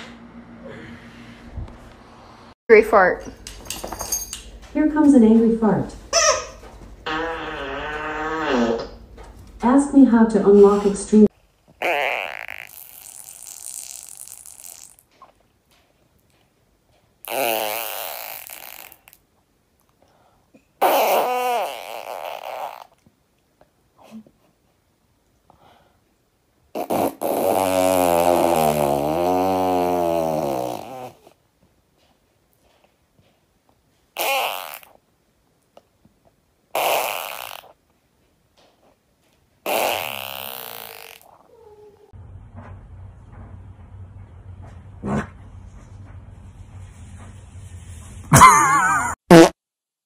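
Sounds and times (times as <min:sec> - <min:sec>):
fart sounds: 0:07.0 - 0:09.1, 0:11.7 - 0:15.4, 0:17.2 - 0:19.3, 0:20.8 - 0:23.1, 0:26.7 - 0:31.4, 0:34.1 - 0:35.0, 0:36.7 - 0:37.8, 0:39.6 - 0:41.6, 0:48.3 - 0:49.6.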